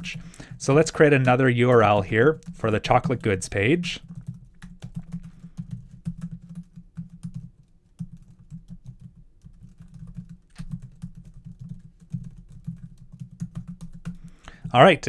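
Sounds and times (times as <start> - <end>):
typing on computer keyboard: 0.0 - 14.5.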